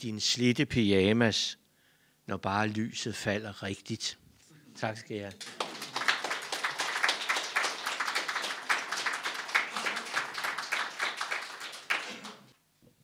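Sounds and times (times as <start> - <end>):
audience applauding: 5.4 - 12.6.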